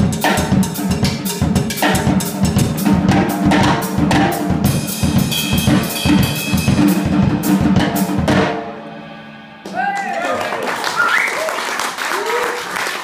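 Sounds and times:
drum kit playing funk groove: 0.0 - 8.8.

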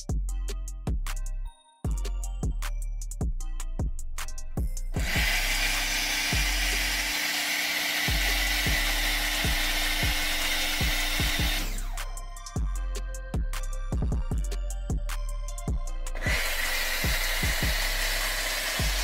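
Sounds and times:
background music with a beat: 0.0 - 19.0
pressure washer spraying water: 5.0 - 11.8, 16.2 - 19.0
motor hum: 5.0 - 11.9, 16.2 - 19.0.

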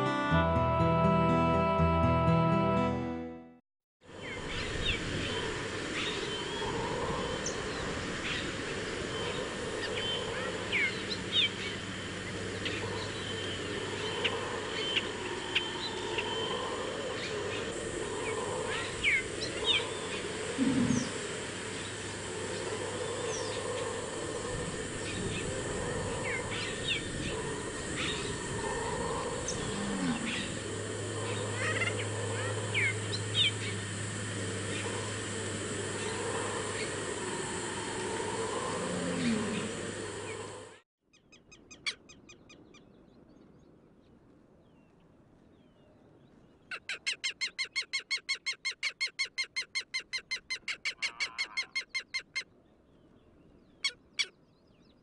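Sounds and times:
steady background hiss: 4.1 - 40.8
low steady hum: 4.2 - 40.8
birds chirping and whistling: 26.2 - 37.0.

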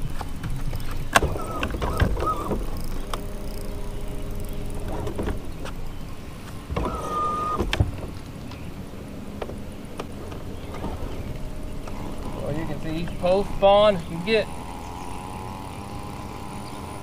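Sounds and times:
rumble of wind and water: 0.0 - 17.0
fishing reel clicks and whines: 0.1 - 5.8, 10.4 - 17.0.

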